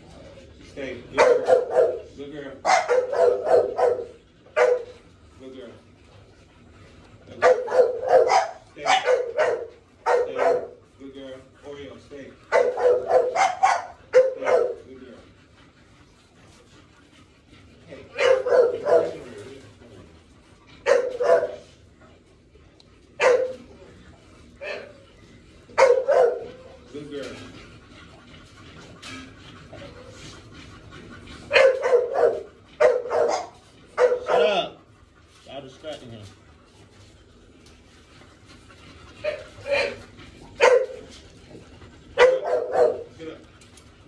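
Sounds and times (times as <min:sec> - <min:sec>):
dog barking: 0:01.2 - 0:05.0, 0:07.4 - 0:10.8, 0:12.5 - 0:14.8, 0:18.1 - 0:19.2, 0:20.8 - 0:21.7, 0:23.2 - 0:23.6, 0:25.8 - 0:26.7, 0:31.5 - 0:34.6, 0:40.6 - 0:41.0, 0:42.2 - 0:43.1.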